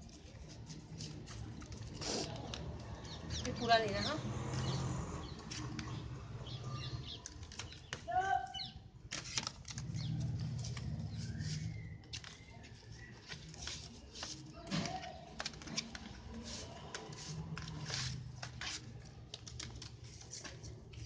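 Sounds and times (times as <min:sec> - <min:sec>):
paper rustling and flicking: 0:00.0 - 0:03.2, 0:07.0 - 0:08.2, 0:09.0 - 0:21.0
sharp paper clicks: 0:00.0 - 0:03.7, 0:04.3 - 0:06.4, 0:07.0 - 0:21.0.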